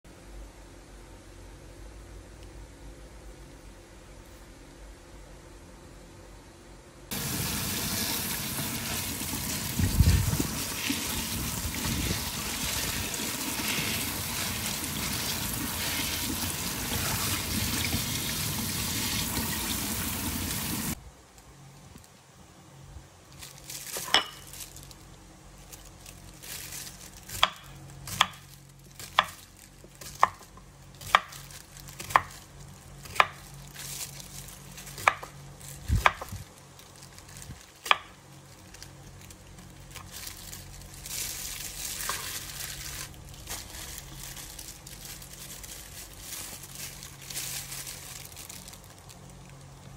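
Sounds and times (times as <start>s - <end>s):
tap water running: 7.1s - 21.0s.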